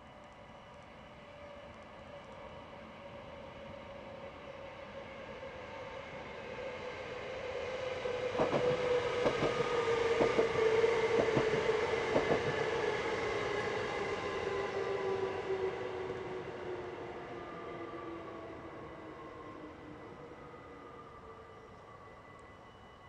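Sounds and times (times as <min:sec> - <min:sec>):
electric train whine: 0:00.0 - 0:23.0
train wheels clicking over rail joints: 0:08.4 - 0:10.6.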